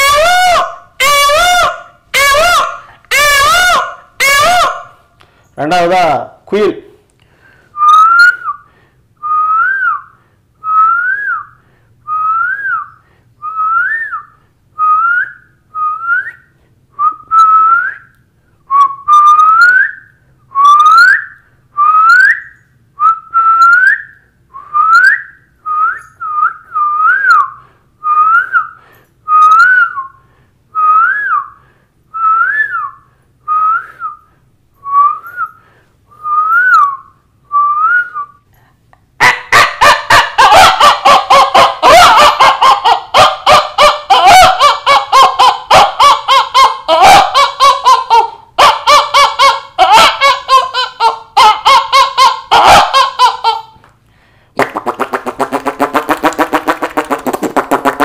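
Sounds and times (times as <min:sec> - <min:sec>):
person whistling bird call: 0:07.8 - 0:08.6, 0:12.1 - 0:16.4, 0:18.7 - 0:30.2, 0:30.8 - 0:31.5, 0:32.2 - 0:34.2, 0:34.8 - 0:35.6, 0:36.2 - 0:38.4.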